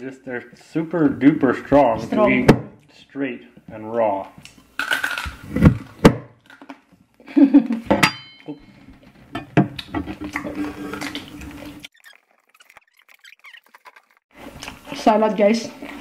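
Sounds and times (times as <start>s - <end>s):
knife scraping a plate: 9.2s - 11.8s.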